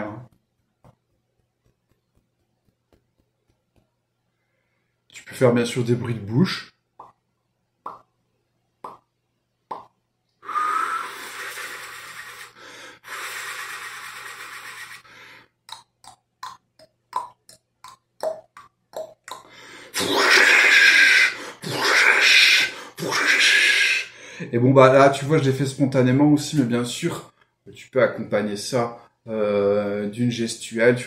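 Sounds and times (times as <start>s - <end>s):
mouth clicks and pops: 7.0s - 8.2s, 8.8s - 10.0s, 10.9s - 15.0s, 15.6s - 21.2s
mouth hissing like rain: 10.4s - 15.0s, 20.0s - 24.1s.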